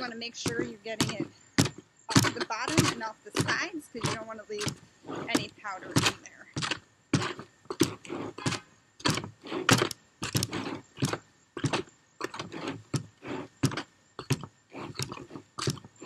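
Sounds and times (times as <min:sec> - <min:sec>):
tool scraping mortar in bucket: 0:00.0 - 0:15.8.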